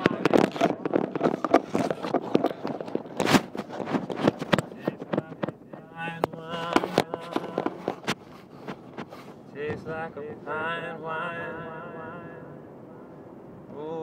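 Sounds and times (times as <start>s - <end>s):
sharp clicks and knocks: 0.0s - 9.9s
steady low hum: 0.0s - 14.0s.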